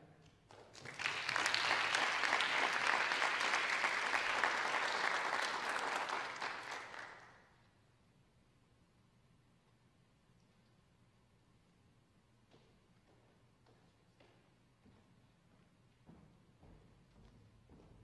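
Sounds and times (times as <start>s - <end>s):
audience applauding: 0.7s - 7.4s.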